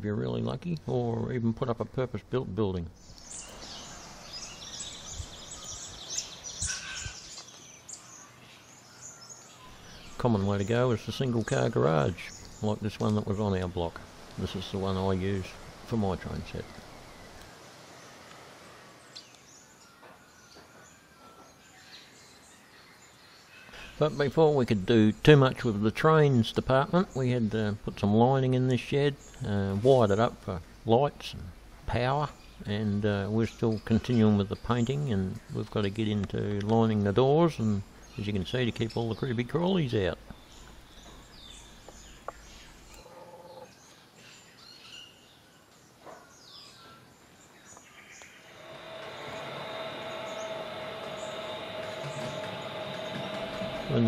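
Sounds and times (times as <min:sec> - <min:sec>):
faint outdoor background noise: 0:00.0 - 0:54.0
small birds chirping: 0:00.0 - 0:54.0
high bird chirps: 0:03.0 - 0:12.9, 0:47.7 - 0:54.0.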